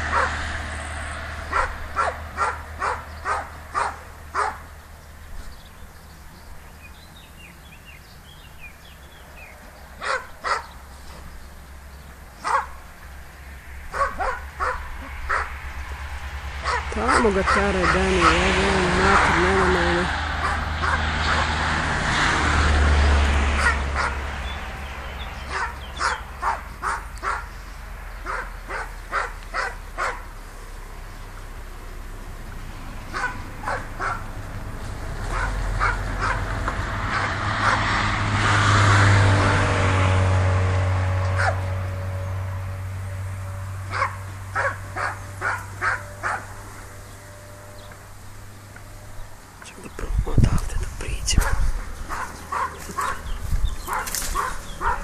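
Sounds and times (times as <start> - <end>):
low rumbling noise: 0.0 - 55.0
dog barking: 0.1 - 0.4, 1.5 - 4.7, 10.0 - 10.7, 12.4 - 12.8, 13.9 - 15.6, 16.6 - 18.4, 20.4 - 21.5, 23.5 - 24.3, 25.5 - 27.5, 28.2 - 30.3, 33.1 - 34.3, 35.3 - 36.5, 37.1 - 37.9, 41.4 - 41.6, 43.9 - 46.6, 51.4 - 53.2, 53.8 - 55.0.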